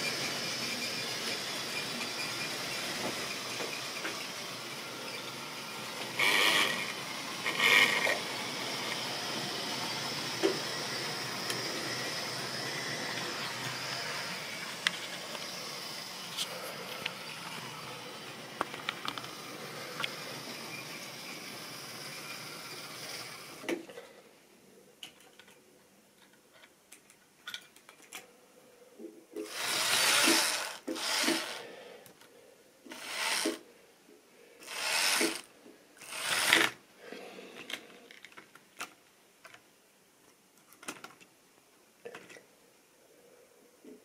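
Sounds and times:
model train running on track: 0:00.0 - 0:15.6
model locomotive clicking and scraping: 0:00.0 - 0:23.7, 0:29.4 - 0:31.6, 0:32.9 - 0:33.6, 0:34.6 - 0:36.8.

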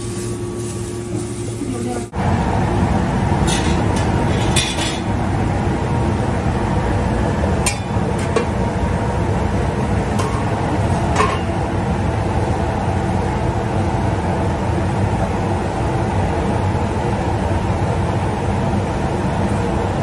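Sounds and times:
metal pots clinking: 0:03.4 - 0:05.1, 0:07.6 - 0:08.6, 0:10.1 - 0:11.6.

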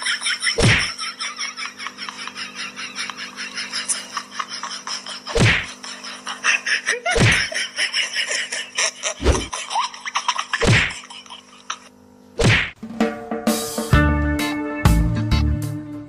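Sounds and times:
heavy whacks: 0:00.6 - 0:00.9, 0:05.4 - 0:05.7, 0:07.2 - 0:07.5, 0:10.6 - 0:10.9, 0:12.4 - 0:12.8.

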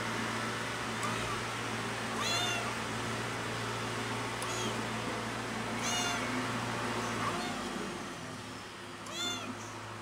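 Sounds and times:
kitten meowing: 0:01.0 - 0:01.4, 0:02.2 - 0:02.8, 0:04.4 - 0:04.8, 0:05.8 - 0:06.3, 0:07.2 - 0:07.7, 0:09.0 - 0:09.7.

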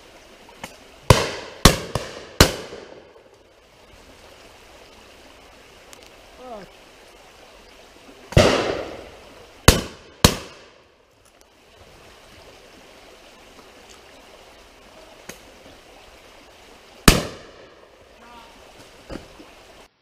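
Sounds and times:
shotgun shots echoing: 0:01.1 - 0:03.1, 0:08.3 - 0:10.8, 0:17.1 - 0:17.7.

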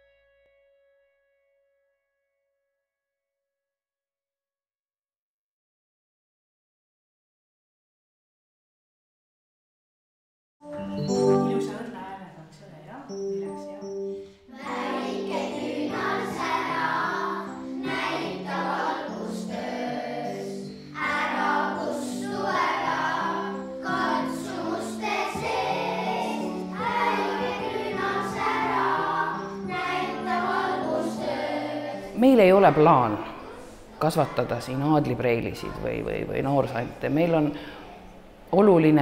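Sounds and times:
keyboard accompaniment: 0:10.6 - 0:38.5
children's choir singing: 0:14.5 - 0:36.2.

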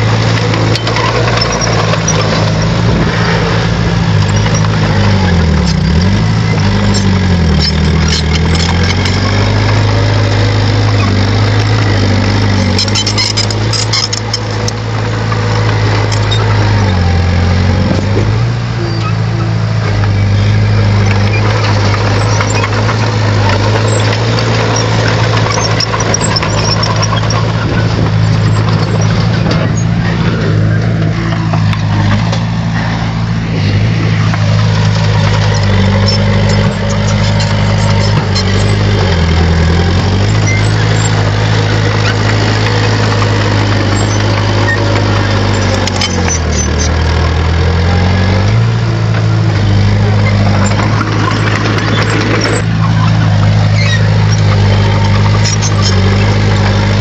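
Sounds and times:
bulldozer diesel engine running: 0:00.0 - 0:57.0.

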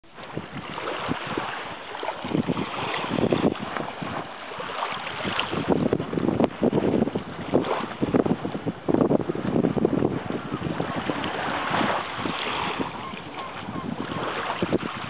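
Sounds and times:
small sea waves washing: 0:00.0 - 0:15.0
wind buffeting microphone: 0:00.1 - 0:15.0.

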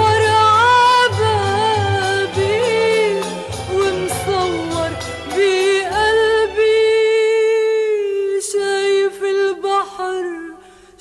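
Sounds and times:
low musical accompaniment: 0:00.0 - 0:07.6
person singing long notes: 0:00.0 - 0:10.6.

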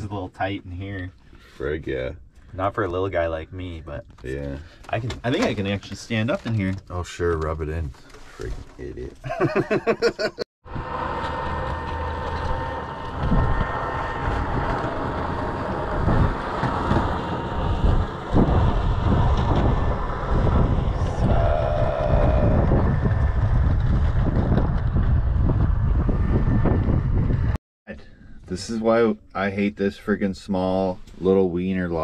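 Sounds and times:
wind buffeting microphone: 0:10.7 - 0:27.6.

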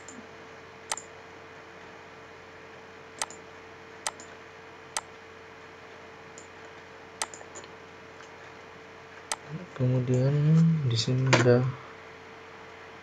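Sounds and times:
faint hum and hiss: 0:00.0 - 0:13.0
computer mouse clicking: 0:03.2 - 0:03.4, 0:04.1 - 0:04.4, 0:07.2 - 0:07.7.

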